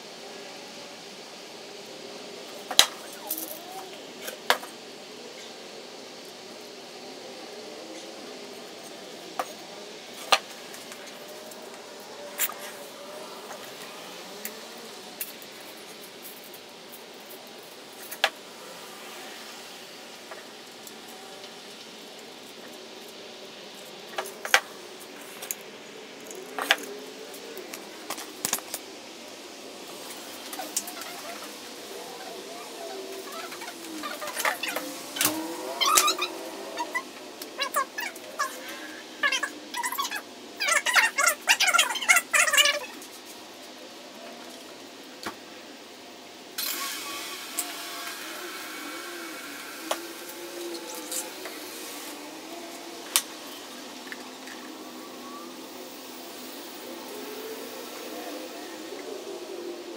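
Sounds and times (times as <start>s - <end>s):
steady workshop hiss: 0.0s - 59.9s
wavering animal call: 30.6s - 43.0s, 46.7s - 53.1s.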